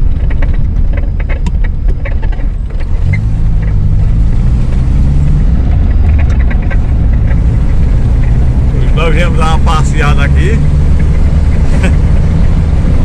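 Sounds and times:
car engine running: 0:00.0 - 0:13.0
road rumble inside car: 0:00.0 - 0:13.0.

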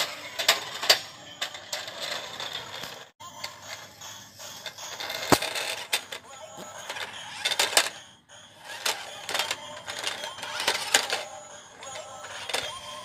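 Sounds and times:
toy car motors whirring: 0:00.0 - 0:13.0.

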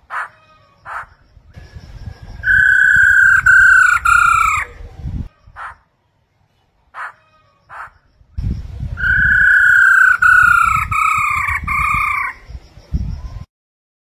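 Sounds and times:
low rumbling noise: 0:08.2 - 0:13.4.

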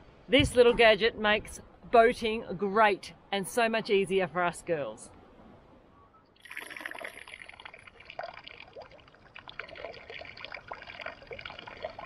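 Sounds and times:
urine splashing into water: 0:06.4 - 0:12.0.

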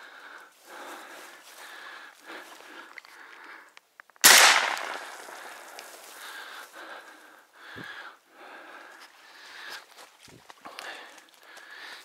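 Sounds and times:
shotgun shot: 0:04.2 - 0:05.6.

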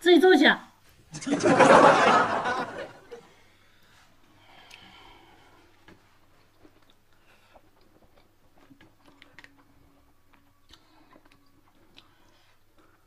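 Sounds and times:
person chewing food: 0:04.5 - 0:13.0
small clicks and crunches: 0:07.8 - 0:12.1.

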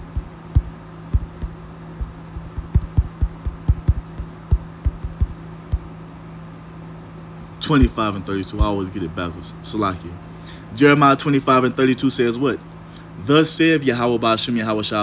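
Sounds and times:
fingertips tapping touchscreen: 0:00.0 - 0:05.9
steady low hum: 0:00.0 - 0:15.0.

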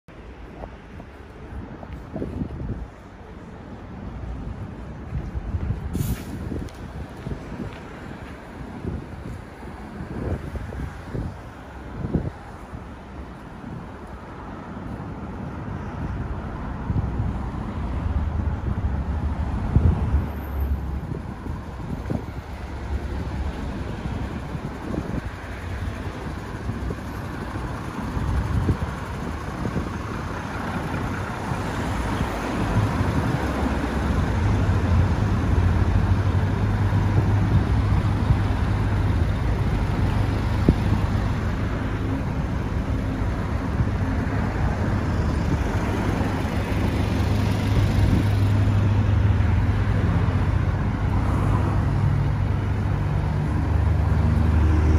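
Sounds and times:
street traffic: 0:00.1 - 0:54.9.

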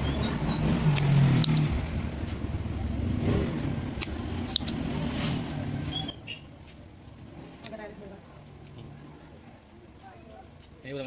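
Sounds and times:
low rumble of vehicle traffic: 0:00.0 - 0:11.0
desoldering pump snapping: 0:00.8 - 0:01.8, 0:03.9 - 0:04.8.

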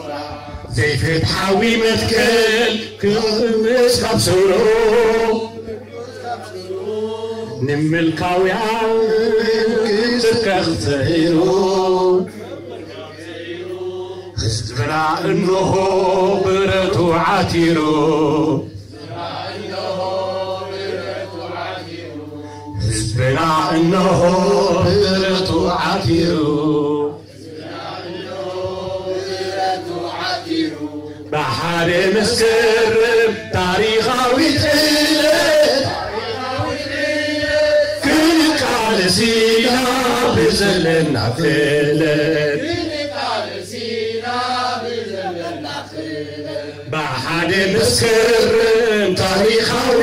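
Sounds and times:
man chanting: 0:00.0 - 0:05.8, 0:07.5 - 0:12.3, 0:14.4 - 0:18.7, 0:22.8 - 0:27.1, 0:31.3 - 0:36.0, 0:38.0 - 0:42.8, 0:46.9 - 0:50.0.

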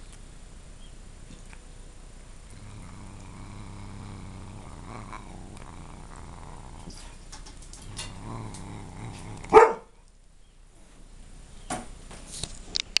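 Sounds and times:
cat growling while chewing: 0:02.4 - 0:09.6.

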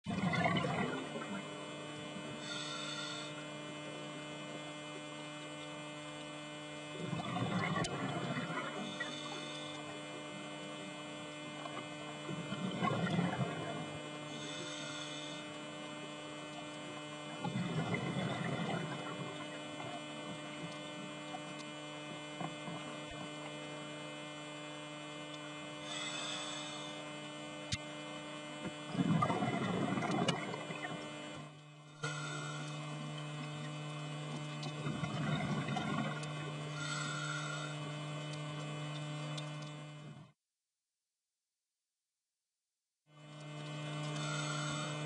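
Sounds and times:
electrical hum: 0:00.0 - 0:40.4, 0:43.1 - 0:45.0
exhaled air bubbling: 0:00.1 - 0:02.4, 0:06.9 - 0:15.0, 0:16.4 - 0:24.0, 0:28.6 - 0:37.8
regulator inhalation hiss: 0:02.4 - 0:03.4, 0:14.3 - 0:15.6, 0:25.8 - 0:27.1, 0:32.0 - 0:33.0, 0:36.8 - 0:37.9, 0:44.2 - 0:45.0.

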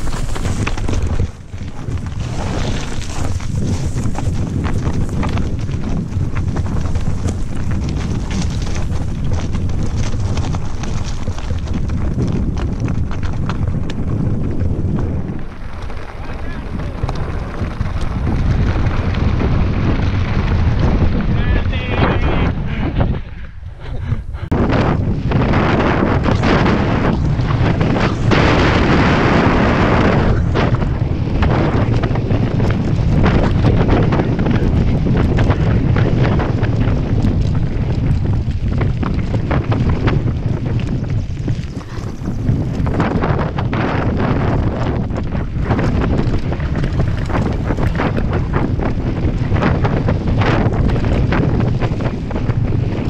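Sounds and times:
tyres crunching over rocks: 0:00.0 - 0:21.6, 0:24.8 - 0:53.0
bike rattling over bumpy ground: 0:00.0 - 0:53.0
wind buffeting on microphone: 0:00.0 - 0:53.0.

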